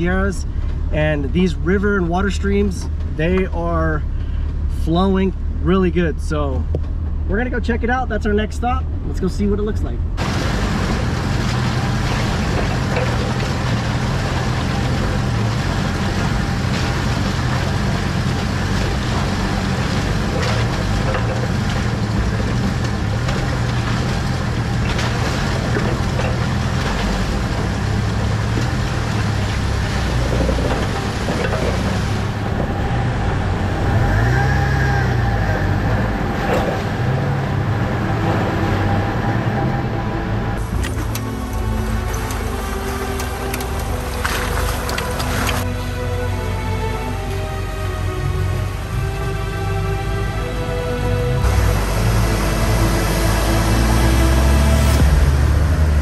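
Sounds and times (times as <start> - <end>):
off-road vehicle engine running: 0.0 - 56.0
tyres grinding over stones: 10.2 - 37.4, 40.6 - 45.7
body knocks and rattles: 19.1 - 32.8.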